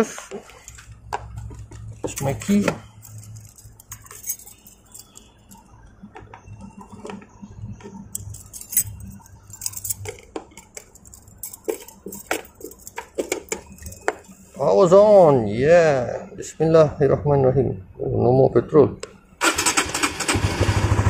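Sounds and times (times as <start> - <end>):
keys jingling: 0.3 - 14.5.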